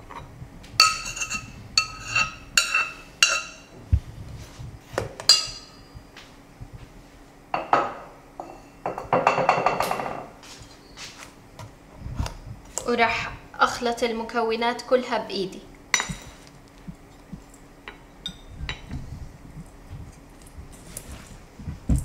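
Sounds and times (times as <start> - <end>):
spoon scraping in bowl: 0.8 - 3.7.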